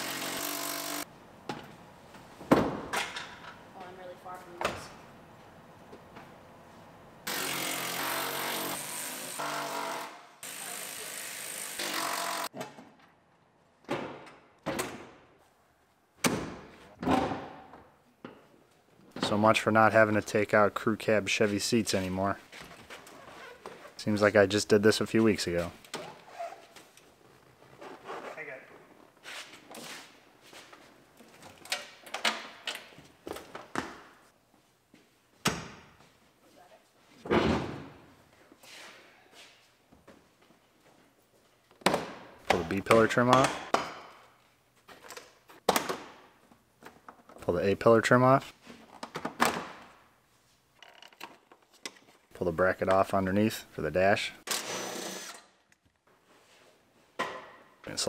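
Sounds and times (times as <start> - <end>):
impact driver running: 54.5 - 55.4.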